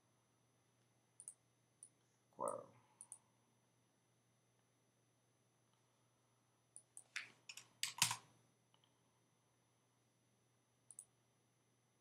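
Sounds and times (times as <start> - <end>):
keyboard typing: 6.8 - 8.3
mouse double click: 10.9 - 11.1.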